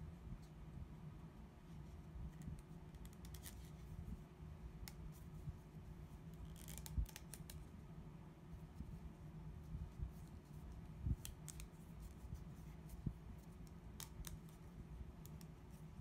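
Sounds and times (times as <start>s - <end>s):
plastic pen clicks and rubbing: 2.4s - 3.8s, 6.4s - 7.6s, 11.2s - 12.2s, 13.4s - 15.5s.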